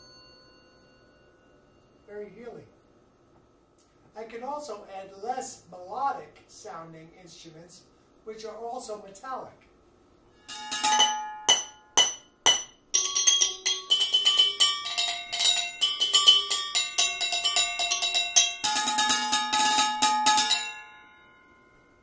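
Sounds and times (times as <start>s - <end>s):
drumsticks striking ringing metal objects: 10.4s - 21.2s.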